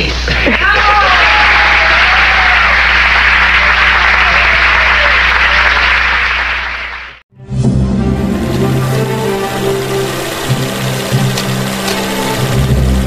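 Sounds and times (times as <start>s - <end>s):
audience applause: 0.3s - 7.2s, 8.4s - 13.0s
music with held tones: 7.5s - 13.0s.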